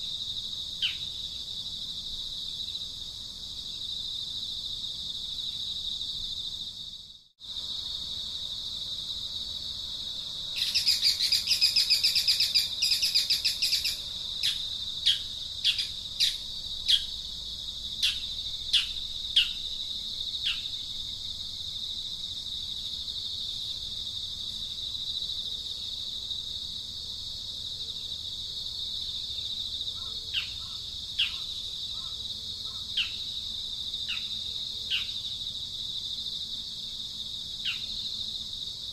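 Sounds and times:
insects shrilling: 9.8 - 21.8
bird chattering and chirping: 10.6 - 17.1.

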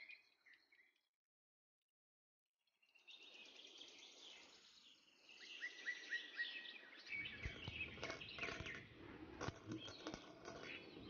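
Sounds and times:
birds chirping: 7.0 - 8.9.

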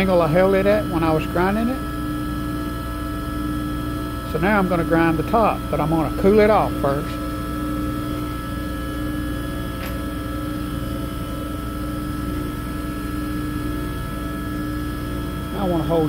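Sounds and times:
bench grinder humming: 0.0 - 16.0.

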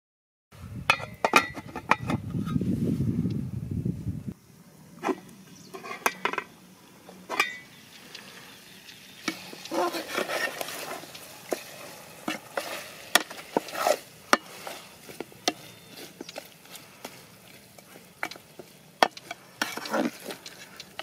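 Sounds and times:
ladle stirring thick curry: 9.2 - 21.0.

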